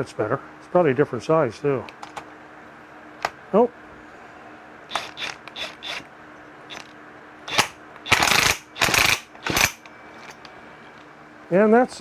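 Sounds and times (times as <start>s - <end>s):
ratchet wrench clicking: 4.9s - 6.0s, 7.5s - 9.9s.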